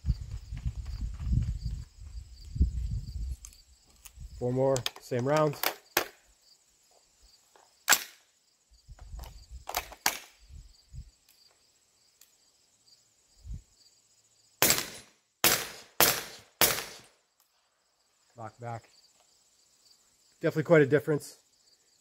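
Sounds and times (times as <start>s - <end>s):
suppressed gunshots: 14.6s - 17.1s.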